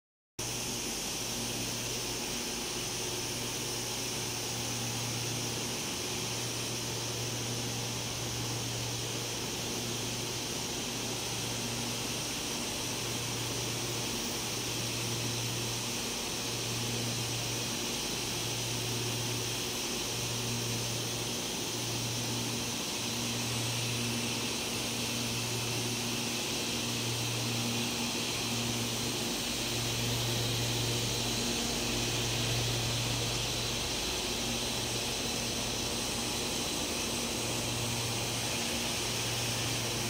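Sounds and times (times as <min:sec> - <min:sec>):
industrial machinery hiss and hum: 0:00.4 - 0:40.0.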